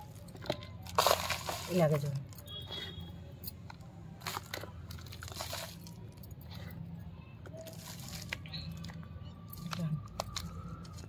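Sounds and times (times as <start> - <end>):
soil crunching and rustling: 0.0 - 2.6, 4.2 - 6.2, 7.6 - 11.0.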